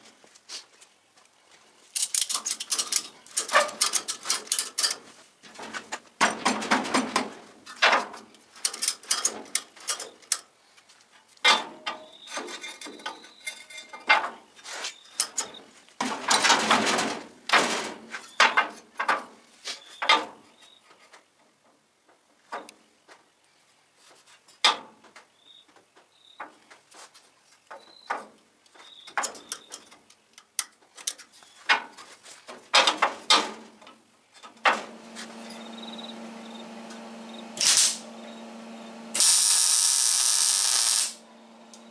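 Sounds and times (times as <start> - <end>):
steel clunks and knocks: 2.8 - 8.2
steady hum: 34.6 - 41.9.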